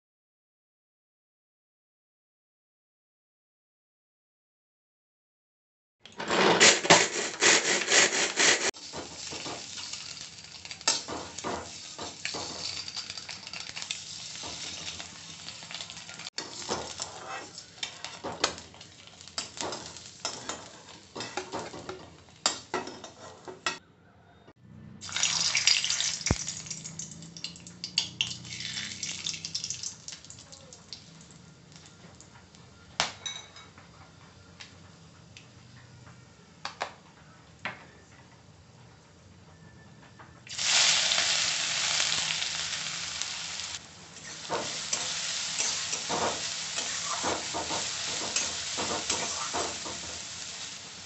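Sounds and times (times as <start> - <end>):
metal spatula scraping: 6.2 - 23.8, 44.2 - 50.7
spices sizzling in hot oil: 7.1 - 23.4, 25.0 - 32.2, 40.5 - 51.0
eggs sizzling in oil: 7.4 - 23.5, 25.0 - 32.3, 40.5 - 51.0.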